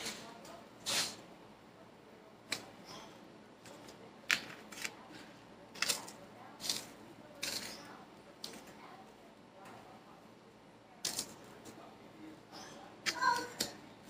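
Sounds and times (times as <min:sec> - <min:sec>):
fork scraping a paper plate: 0:00.0 - 0:01.2, 0:02.8 - 0:08.7
breadcrumbs rustling: 0:03.6 - 0:09.0.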